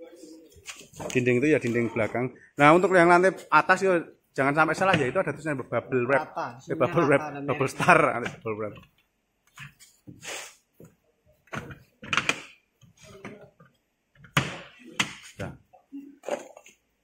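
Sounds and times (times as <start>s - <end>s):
plastic panels knocking and clacking: 11.4s - 12.6s.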